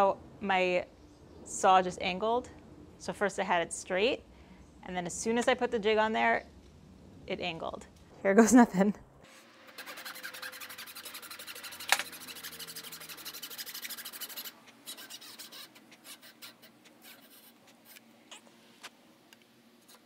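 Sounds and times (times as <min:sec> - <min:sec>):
hand saw cutting wood: 0:09.5 - 0:17.8.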